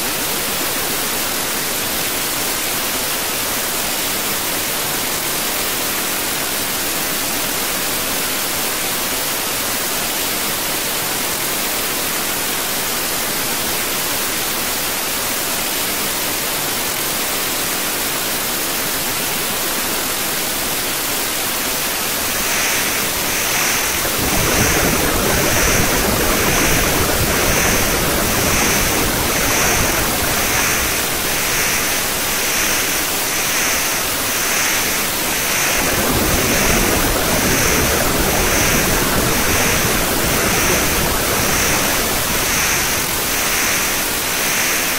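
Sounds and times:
steady hiss: 0:00.0 - 0:44.9
soft high pulsing: 0:22.2 - 0:44.9
deep rumble: 0:22.3 - 0:44.5.

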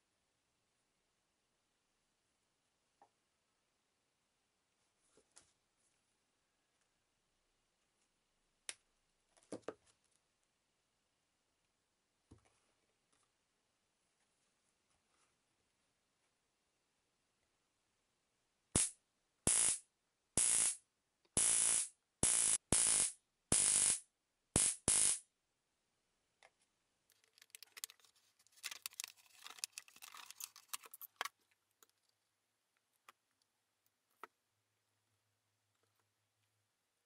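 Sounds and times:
electric buzz of arcing: 0:19.5 - 0:19.8, 0:20.4 - 0:20.8, 0:21.4 - 0:24.0, 0:24.6 - 0:25.2
faint crackling handling noise: 0:26.5 - 0:34.3.

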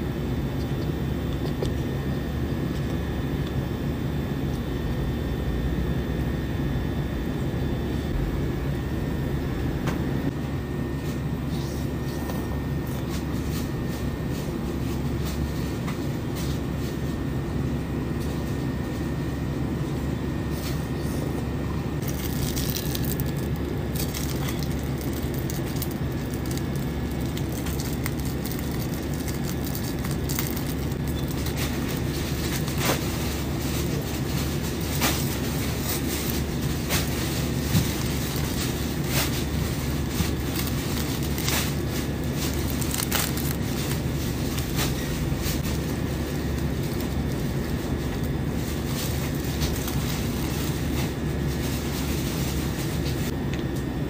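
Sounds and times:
machinery rumbling: 0:04.6 - 0:19.0, 0:19.9 - 0:53.4
snack wrapper rustling: 0:22.0 - 0:33.2, 0:35.0 - 0:48.3.

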